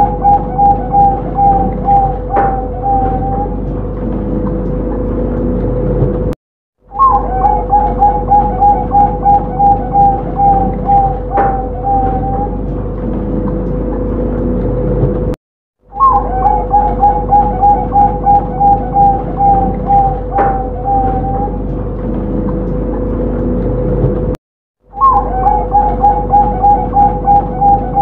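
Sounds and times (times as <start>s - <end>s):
dove cooing: 0.0s - 3.7s, 6.9s - 12.7s, 15.9s - 21.7s, 25.0s - 28.0s
steady hum: 0.0s - 6.4s, 7.1s - 15.4s, 16.0s - 24.4s.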